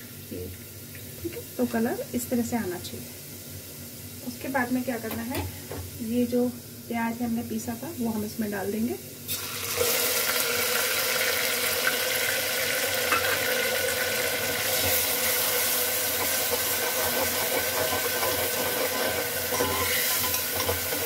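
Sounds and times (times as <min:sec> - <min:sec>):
onion paste sizzling in oil: 0:00.0 - 0:21.0
spatula stirring and scraping: 0:16.1 - 0:21.0.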